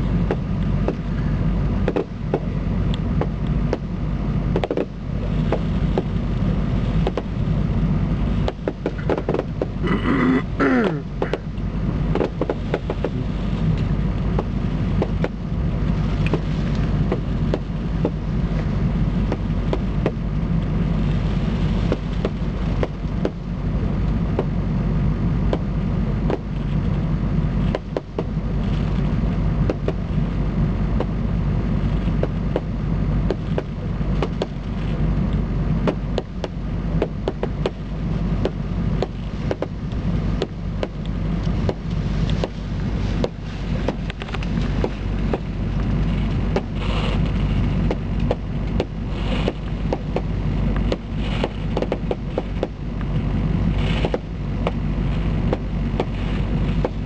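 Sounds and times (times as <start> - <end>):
low rumble: 0.0 - 57.0.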